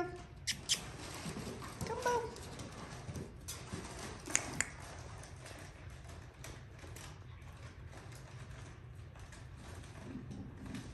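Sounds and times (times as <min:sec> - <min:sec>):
puppy claws clicking on tile: 0:03.9 - 0:05.1.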